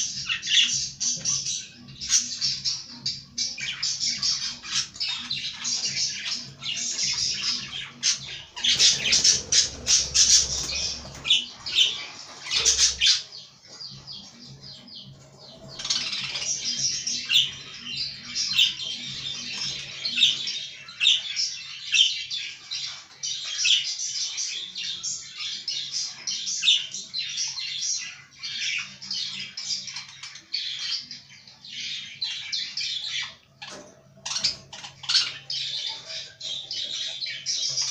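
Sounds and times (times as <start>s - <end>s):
budgerigars chattering: 0.2s - 13.5s, 24.6s - 37.9s.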